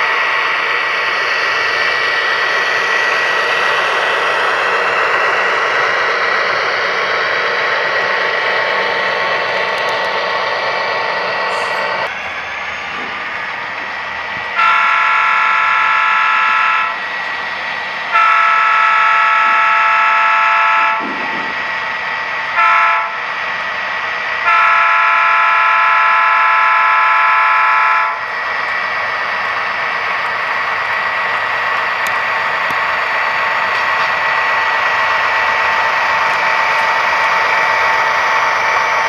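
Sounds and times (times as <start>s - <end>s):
diesel engine hum: 0.0s - 39.0s
multi-chime air horn blasts: 14.6s - 17.0s, 18.1s - 21.0s, 24.5s - 28.2s.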